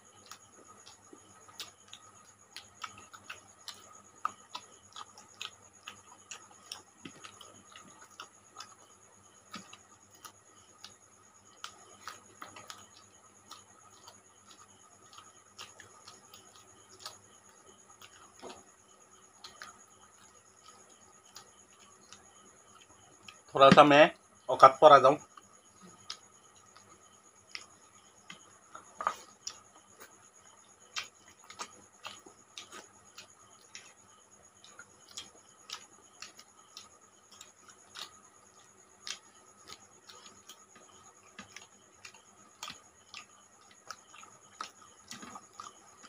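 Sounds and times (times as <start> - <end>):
chewing: 0.0 - 46.0
people eating with their hands: 0.0 - 46.0.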